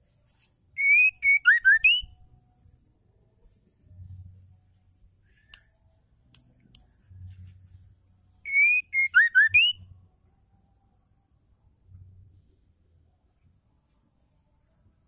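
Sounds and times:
bird whistling: 0:00.8 - 0:02.2, 0:08.4 - 0:09.8.

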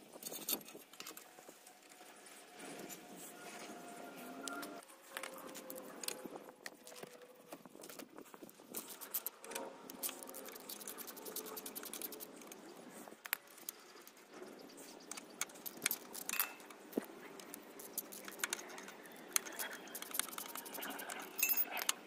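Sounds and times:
metal tools clinking: 0:15.1 - 0:22.0.

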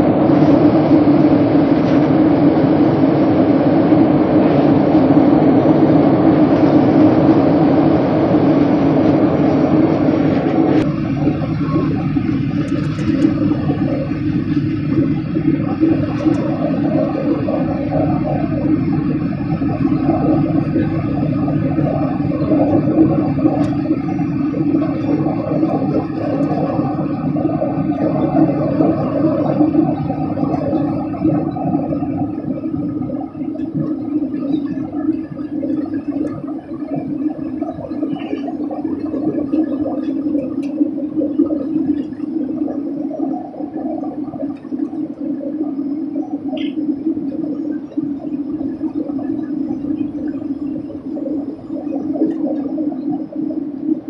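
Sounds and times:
airliner cabin drone: 0:00.0 - 0:54.0.

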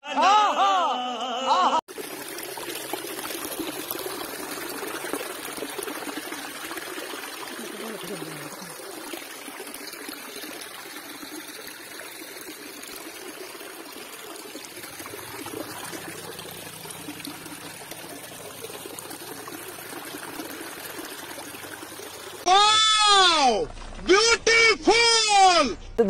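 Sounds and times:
spring water splashing into pool: 0:01.9 - 0:24.3.

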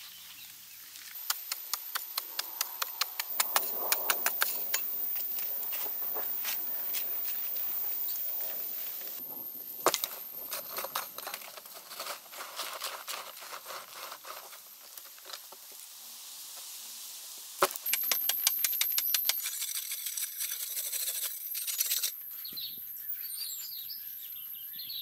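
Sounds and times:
dirt and pebbles trickling down: 0:00.5 - 0:20.2.

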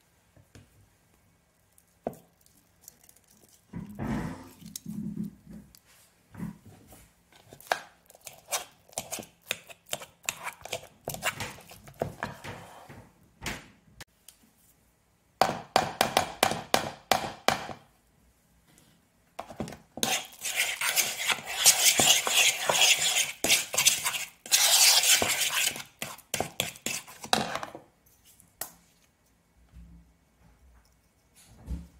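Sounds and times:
fork mashing in a bowl: 0:07.4 - 0:12.4, 0:19.4 - 0:27.7.

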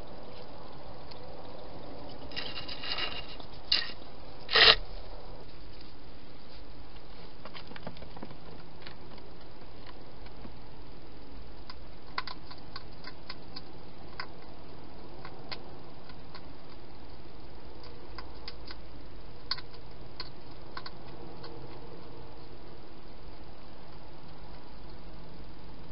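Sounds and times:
steady hiss: 0:00.0 - 0:07.6.

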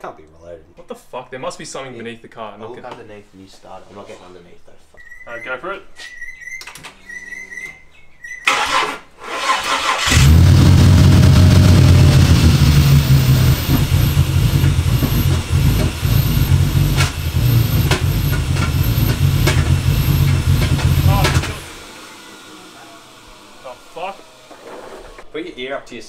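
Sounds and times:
engine starter cranking: 0:08.4 - 0:21.9
engine running rough: 0:10.0 - 0:24.6
sharp engine knocks: 0:11.0 - 0:21.7.

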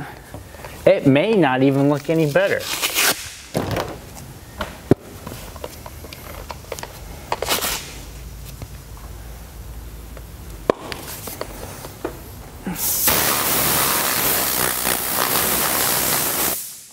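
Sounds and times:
short hiss: 0:12.7 - 0:16.9.

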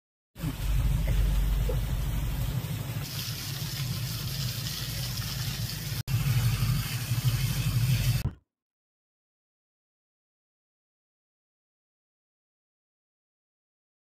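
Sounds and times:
heavy low rumble: 0:00.4 - 0:03.0.

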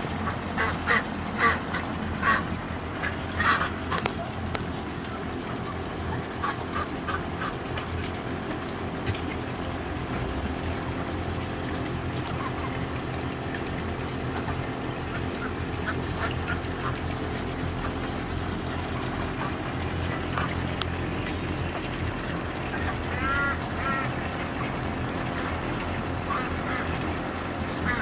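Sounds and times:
steady low hum: 0:00.0 - 0:28.0
duck calling: 0:00.2 - 0:04.3, 0:22.7 - 0:24.8.

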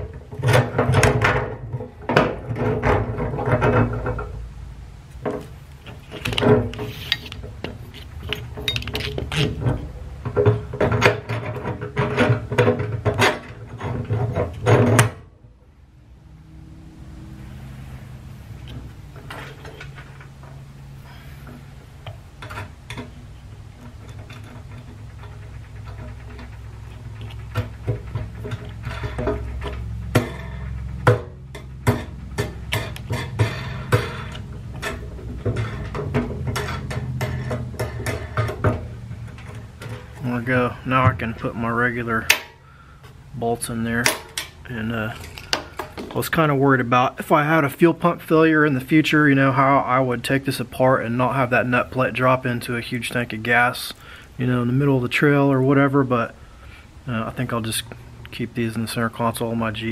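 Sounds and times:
steady low hum: 0:00.0 - 0:59.9
small metal parts clinking: 0:05.8 - 0:09.9.

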